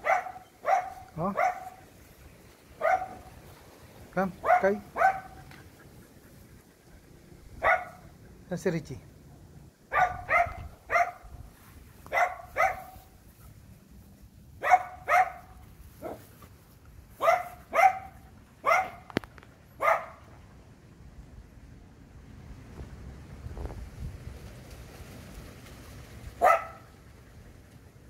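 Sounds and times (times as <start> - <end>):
small dog barking: 0.0 - 1.8, 2.8 - 3.3, 4.4 - 5.4, 7.6 - 8.1, 9.9 - 11.3, 12.1 - 13.1, 14.6 - 16.2, 17.2 - 19.1, 19.8 - 20.2, 26.4 - 26.9.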